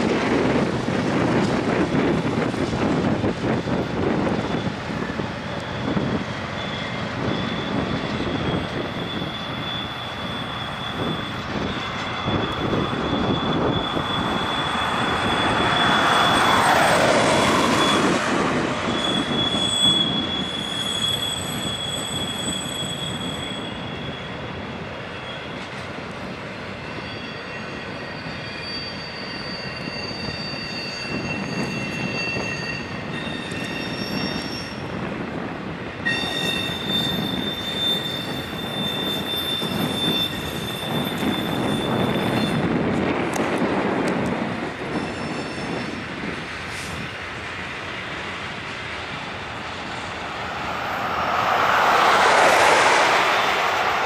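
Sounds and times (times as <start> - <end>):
train wheels rumbling on rails: 0.0 - 54.0
high-pitched wheel squeal: 4.3 - 25.8, 26.8 - 35.0, 36.0 - 42.8, 44.8 - 46.0, 49.3 - 54.0.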